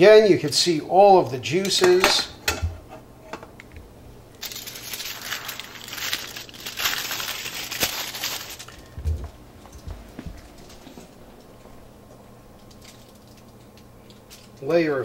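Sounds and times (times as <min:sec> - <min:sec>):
aluminium foil crinkling: 0:04.4 - 0:11.5, 0:12.5 - 0:15.0.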